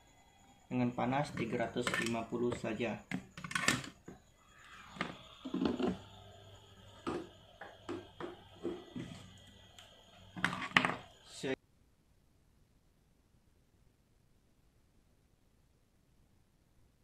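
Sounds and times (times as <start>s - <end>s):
hot-air blower humming: 3.8s - 11.6s.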